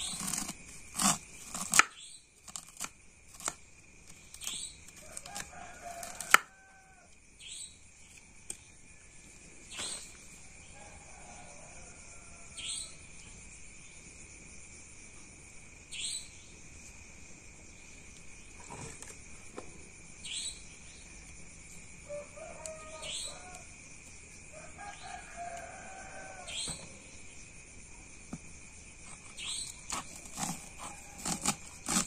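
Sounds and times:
high insect drone: 0.0s - 32.0s
faint chicken clucking: 22.0s - 23.8s.

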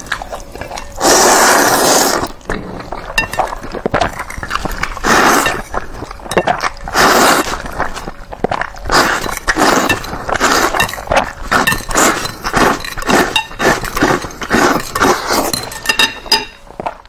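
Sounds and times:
wet slurping of noodles: 0.0s - 2.4s, 4.2s - 6.1s, 6.8s - 15.6s.

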